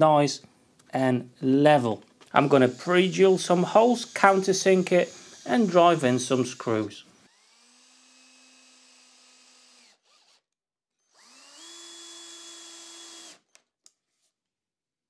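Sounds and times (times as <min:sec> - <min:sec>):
cordless drill whining: 0:02.2 - 0:14.2.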